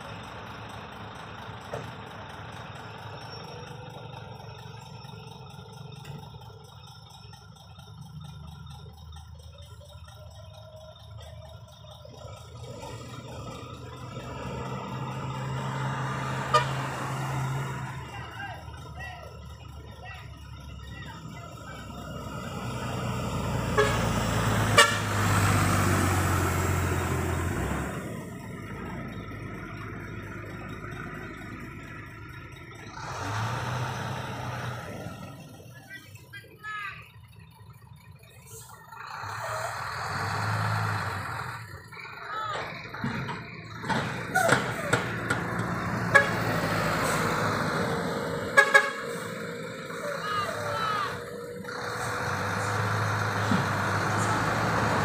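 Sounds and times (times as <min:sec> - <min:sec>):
large vehicle passing: 0:00.0 - 0:55.0
horn toots: 0:16.3 - 0:17.0, 0:23.6 - 0:25.4, 0:46.0 - 0:47.3, 0:48.4 - 0:51.2.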